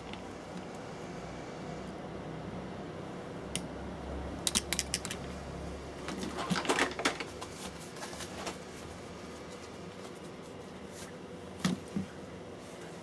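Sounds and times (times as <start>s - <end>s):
side cutters clicking and snipping: 4.4s - 5.2s.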